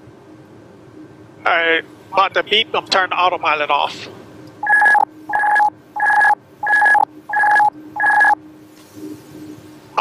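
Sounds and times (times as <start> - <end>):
jet cabin hum: 0.0 - 10.0
electronic alert beeps: 4.6 - 8.4.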